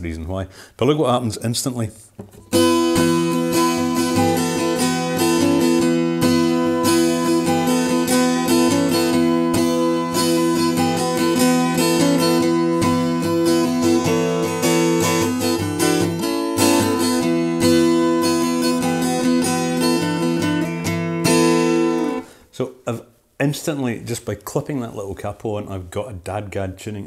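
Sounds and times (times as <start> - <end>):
acoustic guitar strummed: 2.2 - 22.4.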